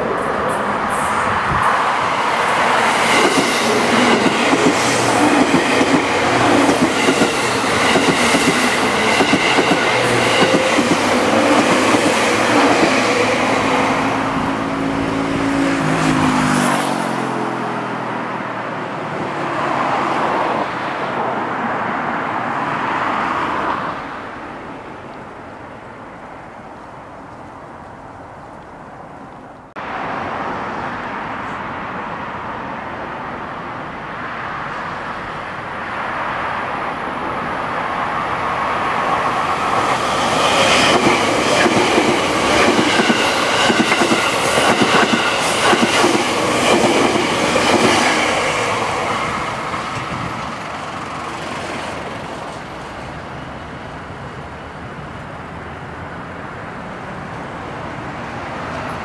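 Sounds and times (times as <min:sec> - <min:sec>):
train passing at speed: 0:00.0 - 0:59.0
wheels clacking over rail joints: 0:02.4 - 0:14.1, 0:39.1 - 0:53.2.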